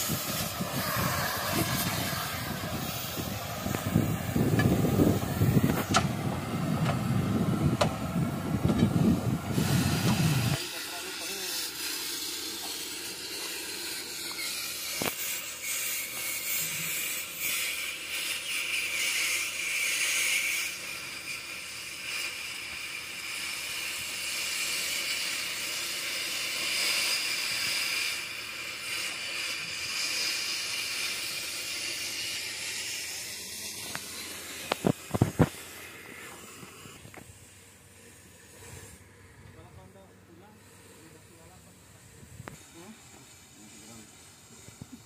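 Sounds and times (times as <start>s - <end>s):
cutting torch hissing: 0.0s - 45.0s.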